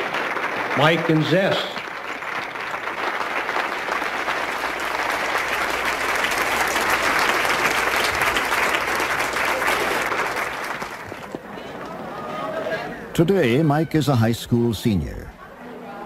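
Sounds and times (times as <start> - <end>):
audience applauding: 0.0 - 11.4.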